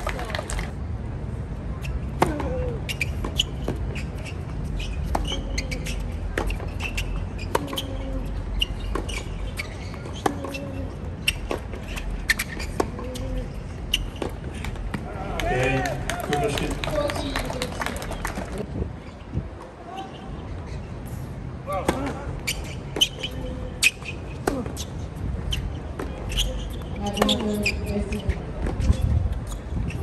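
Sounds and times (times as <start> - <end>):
tennis ball bouncing: 2.1 - 15.1, 21.8 - 29.4.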